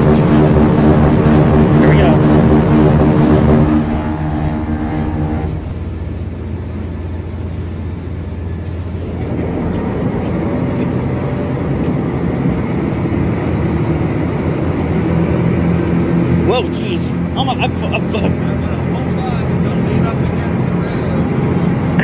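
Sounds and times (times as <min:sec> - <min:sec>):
pitched tone: 0:00.0 - 0:06.4
ferry engines rumbling: 0:00.0 - 0:22.0
rushing water: 0:03.8 - 0:22.0.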